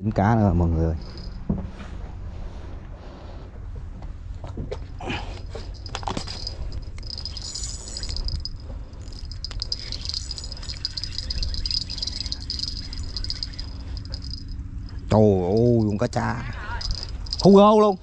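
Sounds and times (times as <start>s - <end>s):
low background rumble: 0.0s - 18.0s
insects chirring: 1.0s - 1.5s, 5.1s - 17.9s.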